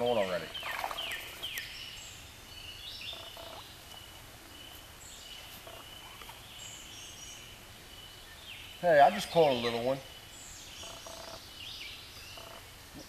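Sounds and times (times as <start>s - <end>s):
faint bird calls: 2.6s - 8.4s, 9.1s - 13.0s.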